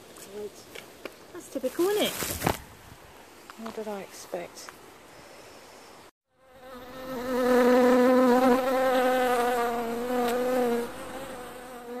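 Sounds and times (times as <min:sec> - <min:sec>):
bee buzzing: 0:06.4 - 0:12.0.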